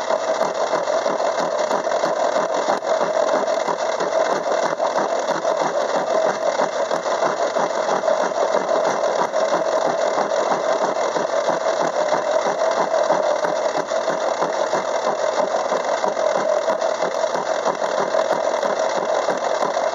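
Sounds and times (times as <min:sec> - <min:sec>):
metal lathe clattering: 0:00.0 - 0:19.9.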